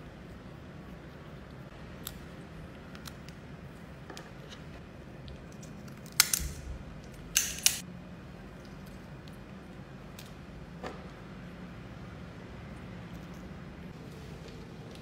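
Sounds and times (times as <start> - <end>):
crab shell cracking: 5.2 - 7.8.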